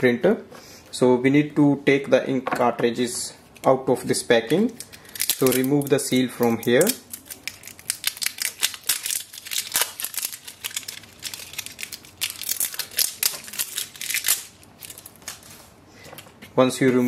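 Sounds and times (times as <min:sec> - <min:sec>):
plastic seal crinkling: 0:04.8 - 0:15.5.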